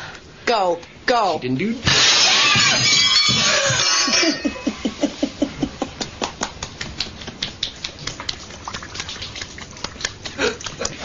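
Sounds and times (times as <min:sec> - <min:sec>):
plates and cutlery crashing on floor: 0:01.8 - 0:04.6
rapid rhythmic laughter: 0:04.1 - 0:07.5, 0:09.8 - 0:11.0.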